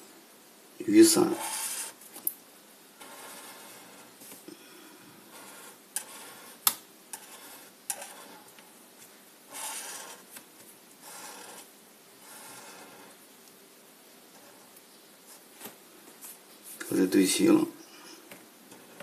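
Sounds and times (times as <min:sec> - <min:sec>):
marker scratching on paper: 0:01.4 - 0:02.0, 0:03.0 - 0:04.1, 0:05.3 - 0:08.5, 0:09.5 - 0:10.4, 0:11.0 - 0:13.2.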